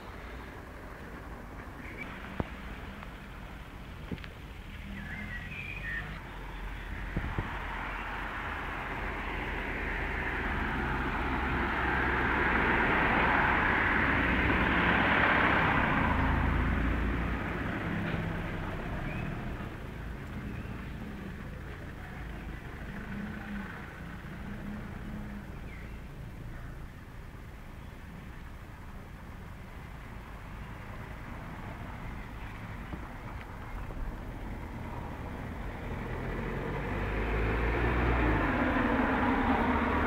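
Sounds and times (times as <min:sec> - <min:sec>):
vehicle passing: 0:00.0 - 0:40.0.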